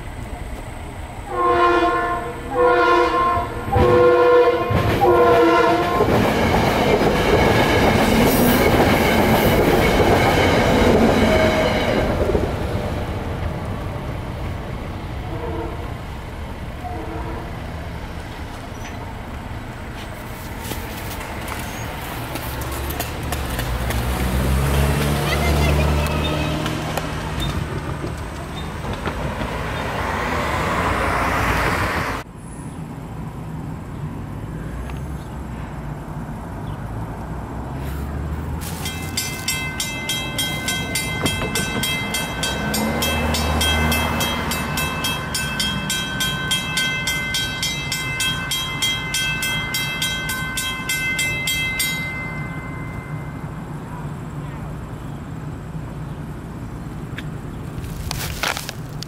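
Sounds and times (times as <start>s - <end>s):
train rumbling over crossing: 0.0s - 58.8s
crossing warning bell ringing: 1.1s - 12.6s, 38.6s - 54.4s.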